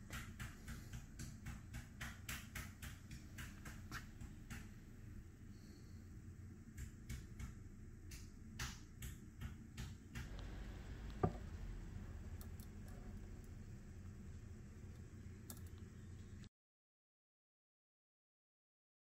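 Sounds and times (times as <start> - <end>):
sharp knock: 11.2 - 11.4.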